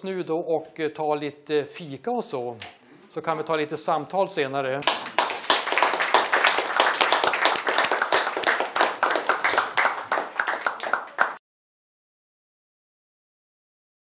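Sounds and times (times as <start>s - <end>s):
audience applauding: 4.8s - 11.4s.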